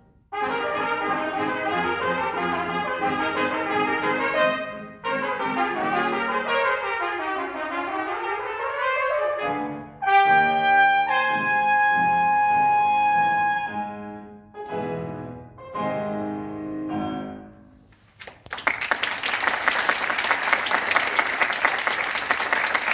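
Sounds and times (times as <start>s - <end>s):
trumpets and piano chords: 0.0s - 17.9s
audience applause: 18.1s - 22.9s.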